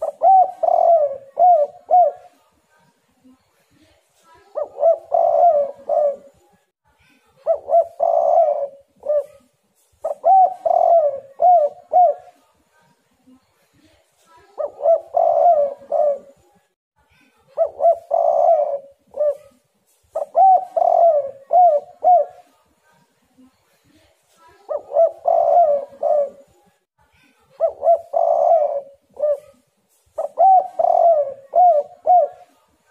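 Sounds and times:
dove cooing: 0.0 - 2.4, 4.5 - 6.5, 7.4 - 12.4, 14.5 - 16.4, 17.6 - 22.5, 24.7 - 26.6, 27.6 - 29.6, 30.2 - 32.6.

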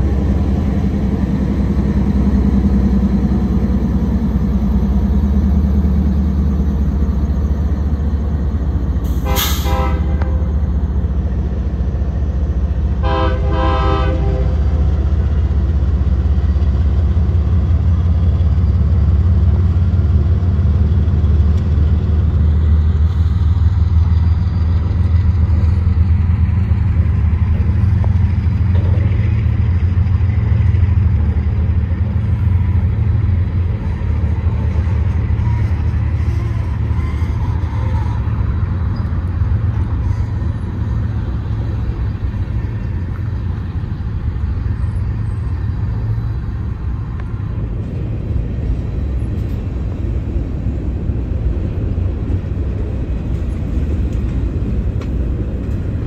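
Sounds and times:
freight train rumble: 0.0 - 56.0
train horn blasts: 9.2 - 10.6, 13.0 - 14.8, 34.8 - 38.3.

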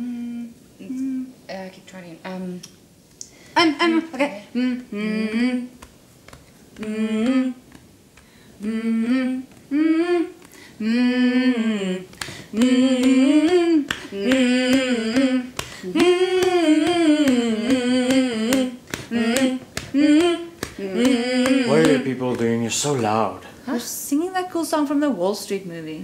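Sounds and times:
women humming a chant: 0.0 - 1.4, 4.4 - 5.8, 6.8 - 7.6, 8.6 - 22.4
hands tapping on chests: 12.1 - 22.5.

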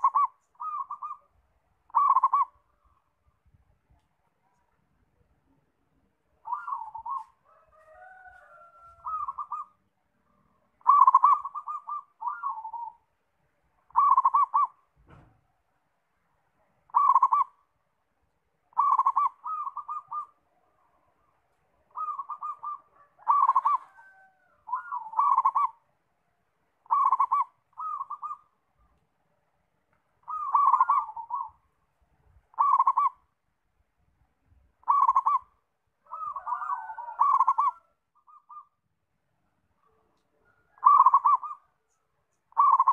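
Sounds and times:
dove cooing: 0.0 - 1.3, 1.9 - 3.1, 6.4 - 9.8, 10.6 - 13.1, 13.9 - 14.8, 16.9 - 17.6, 18.7 - 25.9, 26.8 - 28.9, 30.2 - 31.6, 32.5 - 33.3, 34.8 - 38.8, 39.8 - 42.9.

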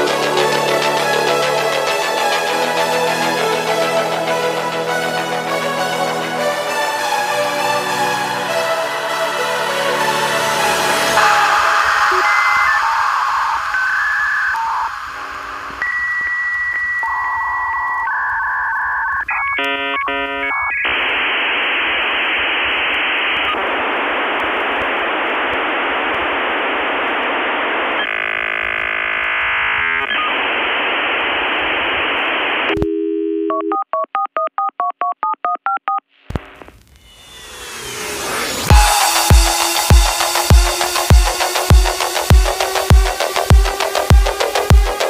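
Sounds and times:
telephone beeps and tones: 11.2 - 20.8, 32.7 - 36.0
two-tone dialing beeps: 11.2 - 20.8, 32.8 - 36.0.

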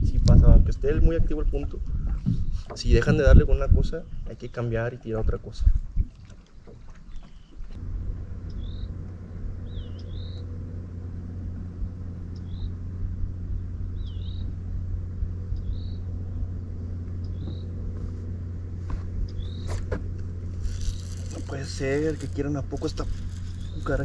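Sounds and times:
boat motor humming: 0.0 - 24.0
bird whistling calls: 8.5 - 8.9, 9.6 - 10.5, 13.9 - 14.6.

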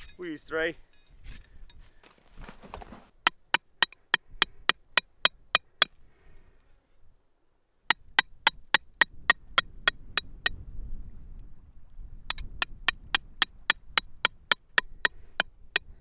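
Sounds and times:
hatchet hammering metal tent pegs: 7.9 - 10.3, 12.3 - 15.9.

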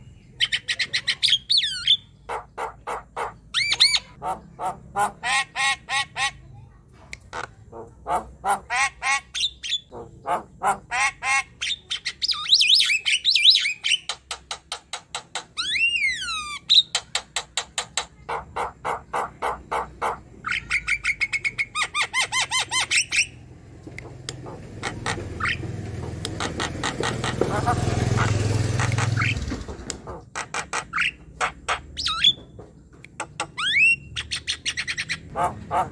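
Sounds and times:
bird chattering and whistling: 0.2 - 6.4, 7.3 - 14.4, 15.1 - 23.4, 24.0 - 29.5, 33.2 - 35.9.

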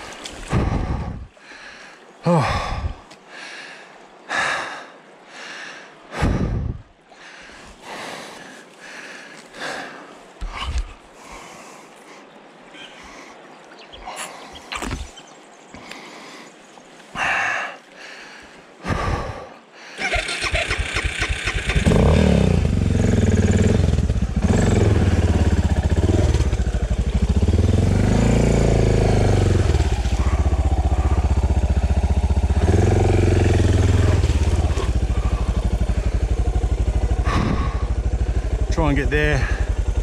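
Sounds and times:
motorcycle engine starting and revving: 20.0 - 40.0.

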